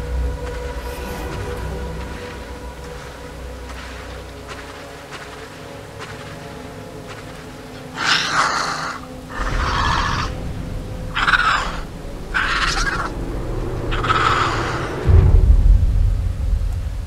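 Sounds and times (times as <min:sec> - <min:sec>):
low rumble: 0:00.0 - 0:04.6, 0:09.3 - 0:17.0
dinosaur rasping cries: 0:11.1 - 0:13.1.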